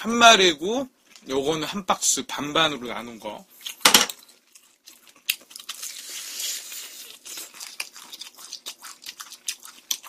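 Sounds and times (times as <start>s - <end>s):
fried chicken crackling and tearing: 3.7s - 10.0s.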